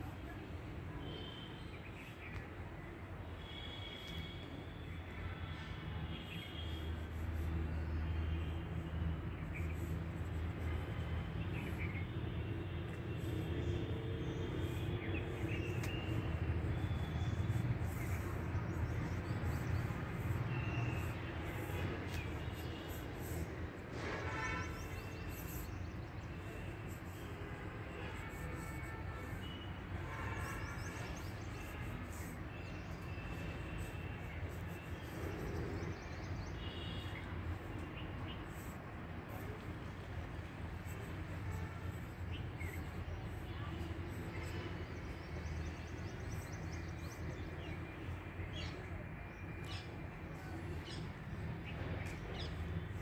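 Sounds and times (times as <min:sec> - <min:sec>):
small birds chirping: 0:06.2 - 0:27.4.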